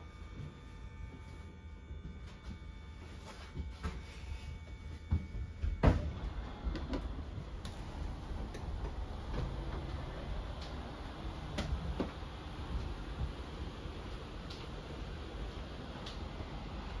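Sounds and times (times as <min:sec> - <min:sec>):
hydraulic pump hum: 0:00.0 - 0:17.0
clicks and knocks of moving rooms: 0:05.1 - 0:14.8.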